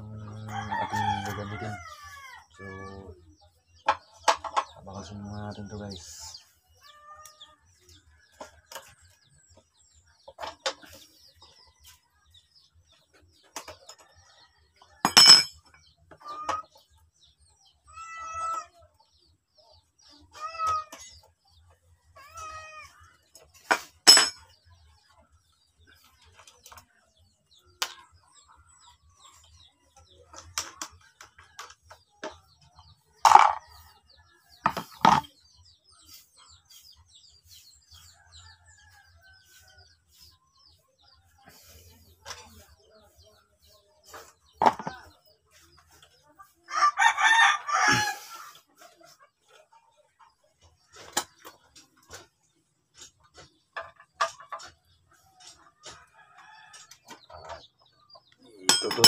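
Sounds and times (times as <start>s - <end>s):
cat meowing: 17.9s - 18.7s.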